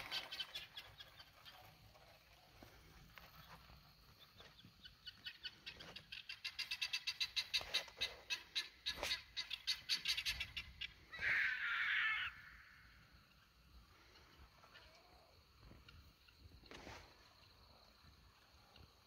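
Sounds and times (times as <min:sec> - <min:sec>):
harsh rasping bird call: 0:07.0 - 0:13.0.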